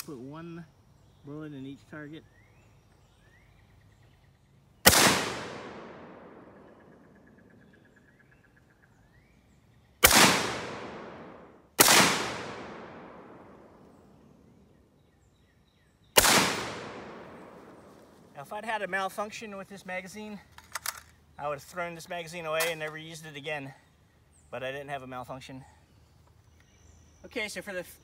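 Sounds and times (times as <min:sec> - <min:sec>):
rifle shots with echo: 0:04.8 - 0:07.4, 0:10.0 - 0:14.2, 0:16.2 - 0:18.0.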